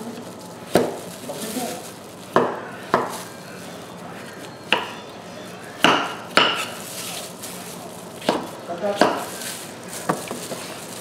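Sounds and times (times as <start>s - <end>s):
knife chopping on wooden board: 5.8s - 6.7s, 8.2s - 9.3s.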